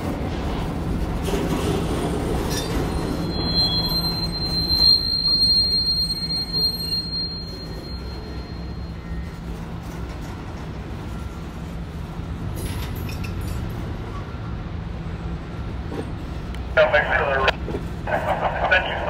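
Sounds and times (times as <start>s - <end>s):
railroad cars rumbling: 0.0s - 19.0s
steel wheels squealing on rail: 1.2s - 16.4s.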